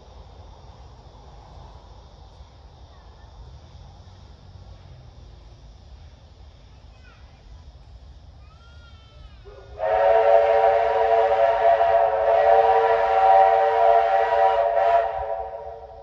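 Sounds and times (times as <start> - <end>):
hiss of steam: 0.0 - 16.0
steam locomotive whistle: 9.5 - 16.0.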